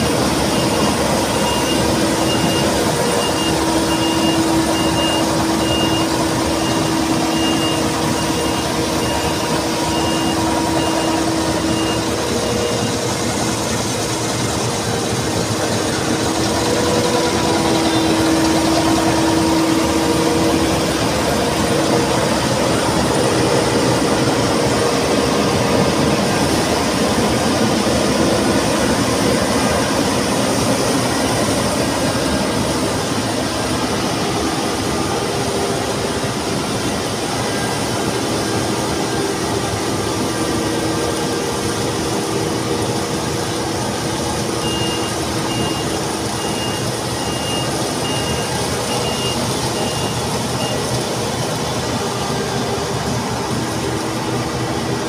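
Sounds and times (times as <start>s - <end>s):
combine harvester running: 0.0s - 55.0s
high beep: 0.5s - 13.1s, 44.6s - 50.9s.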